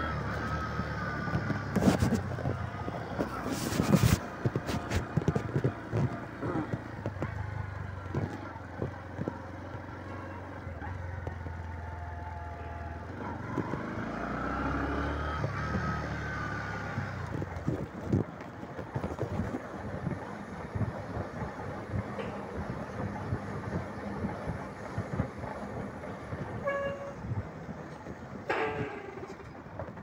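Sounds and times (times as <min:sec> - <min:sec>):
motorcycle engine humming: 0:00.0 - 0:30.0.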